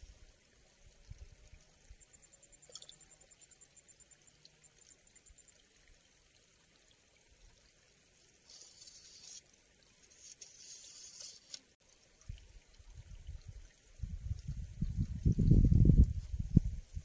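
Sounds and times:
rustling hiss: 0:08.1 - 0:17.0
high-pitched hiss: 0:08.4 - 0:11.7.

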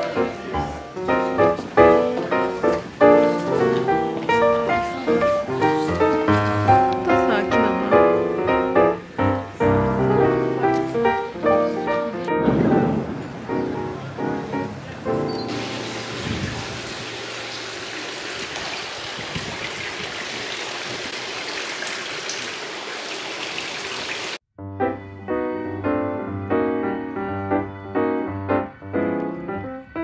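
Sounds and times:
piano music: 0:00.0 - 0:17.8, 0:24.6 - 0:30.0
fountain water splashing: 0:00.0 - 0:24.4.

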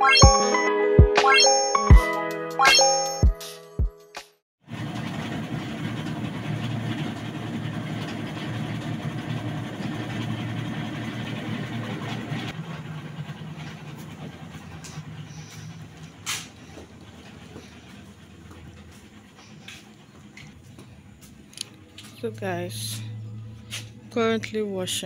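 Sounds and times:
washing machine churning hum: 0:04.6 - 0:25.0
outdoor background noise: 0:05.0 - 0:25.0.

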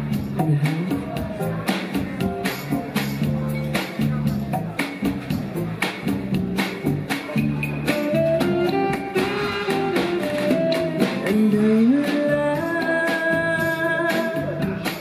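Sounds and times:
drums: 0:00.0 - 0:15.0
instrumental accompaniment: 0:00.0 - 0:15.0.

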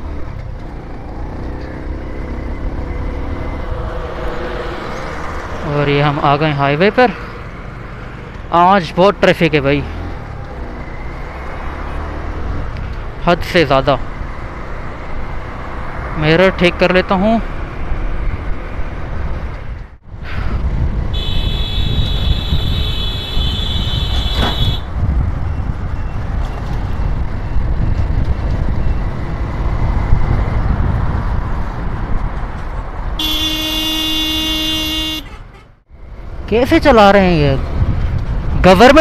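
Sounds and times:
wind noise: 0:17.8 - 0:33.4, 0:37.1 - 0:39.0
low vehicle horn: 0:21.1 - 0:24.9, 0:33.2 - 0:35.8
high-pitched vehicle horn: 0:21.2 - 0:24.9, 0:33.2 - 0:35.7.

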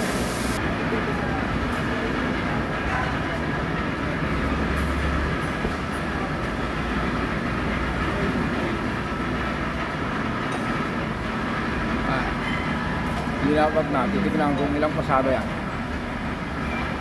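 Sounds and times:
resurfacing machine running: 0:00.0 - 0:02.8.

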